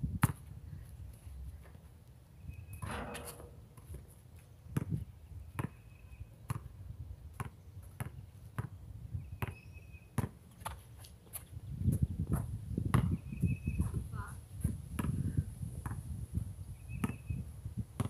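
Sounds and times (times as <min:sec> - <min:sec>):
basketball bouncing on concrete: 0:04.8 - 0:05.0, 0:06.5 - 0:06.7, 0:07.3 - 0:08.8, 0:10.2 - 0:10.4, 0:12.2 - 0:13.2.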